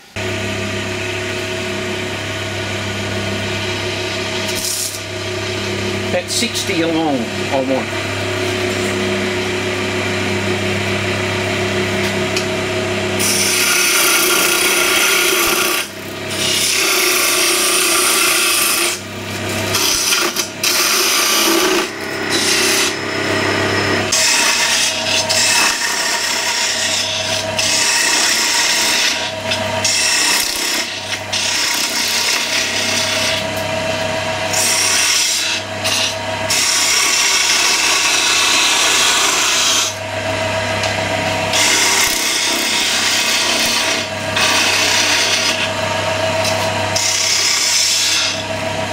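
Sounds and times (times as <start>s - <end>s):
wood lathe hum: 0.0s - 48.9s
lathe tool cutting wood hiss: 13.2s - 33.8s, 34.4s - 40.0s, 41.5s - 48.5s.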